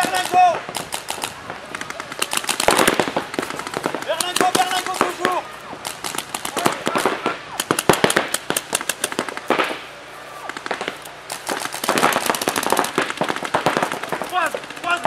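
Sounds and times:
paintball markers firing: 0.0 - 15.0.

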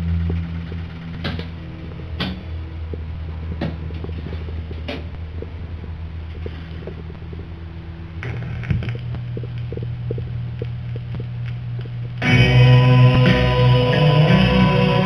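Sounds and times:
jukebox mechanism humming: 0.0 - 15.0
record surface noise ticking: 0.0 - 15.0
guitar-backed music from record: 12.2 - 15.0.

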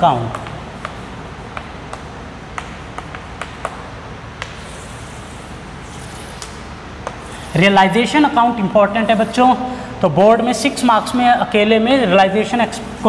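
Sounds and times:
steady background noise: 0.0 - 13.0
chalk tapping on chalkboard: 0.2 - 7.7
chalk scratching on chalkboard: 4.4 - 9.6.

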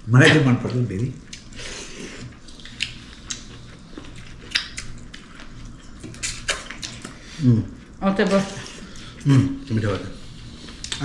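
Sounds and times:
person chewing food: 0.6 - 9.3, 10.2 - 11.0
mouth smacks and crunches: 1.2 - 1.6, 2.3 - 7.2, 10.7 - 11.0.

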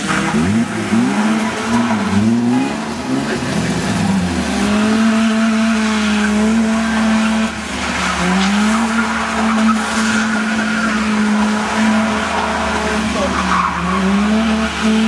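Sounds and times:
car engine revving: 0.0 - 15.0
tyres skidding on dirt: 0.0 - 15.0.

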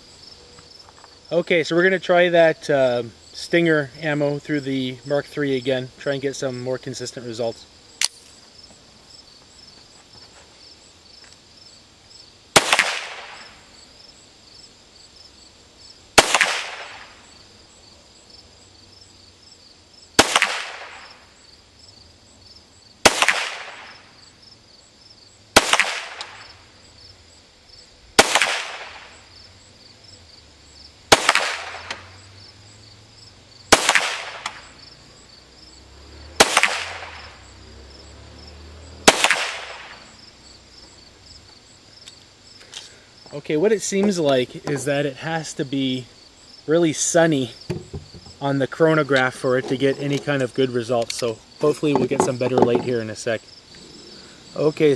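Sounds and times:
pistol shots echoing: 12.6 - 13.4, 16.2 - 17.1, 20.2 - 21.1, 23.1 - 24.0, 25.6 - 26.4, 28.2 - 29.1, 31.1 - 32.0, 33.7 - 34.7, 36.4 - 37.3, 39.0 - 40.0.

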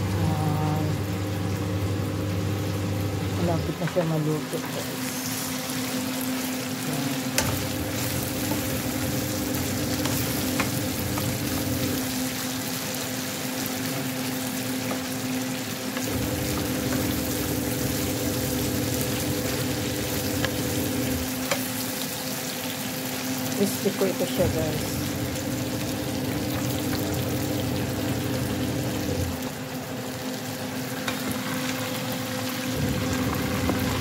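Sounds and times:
steady low hum: 0.0 - 12.4
chicken sizzling in oil: 0.0 - 34.0.

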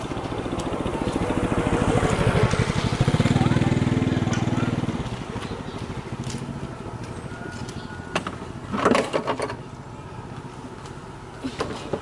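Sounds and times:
vehicle engine running: 0.0 - 12.0
metal clatter of wheel: 7.6 - 9.7.

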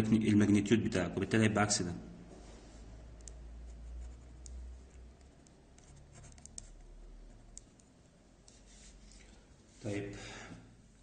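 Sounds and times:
pen scratching on paper: 3.7 - 5.0, 5.7 - 7.9.

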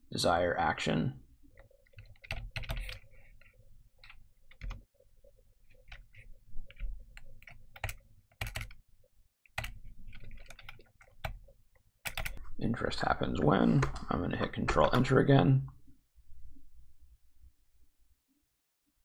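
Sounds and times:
keyboard typing clicks: 1.8 - 4.8, 5.8 - 8.8, 12.0 - 12.4.

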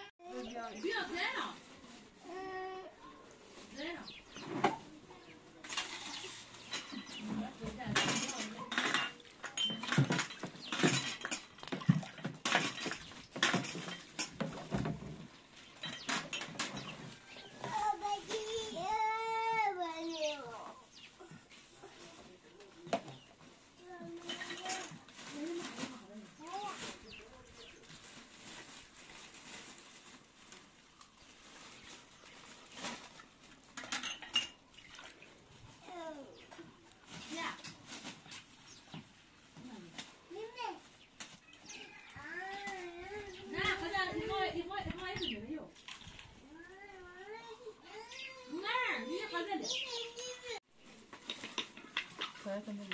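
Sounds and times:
glasses clinking on metal tray: 7.9 - 14.4, 33.8 - 34.6
glass clinking: 33.8 - 34.6.

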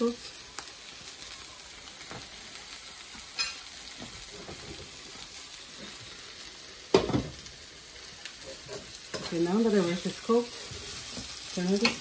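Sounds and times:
onions sizzling in a frying pan: 0.0 - 12.0
spatula stirring in a pan: 8.4 - 12.0.

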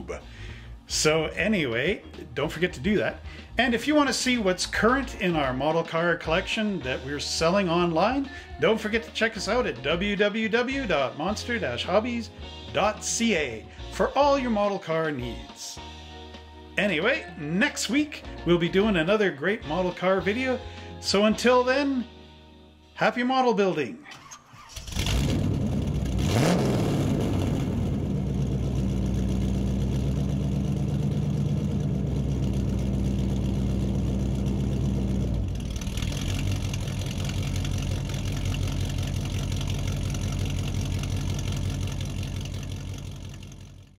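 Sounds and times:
car engine starting and revving: 24.2 - 44.0
car engine idling: 24.7 - 44.0.

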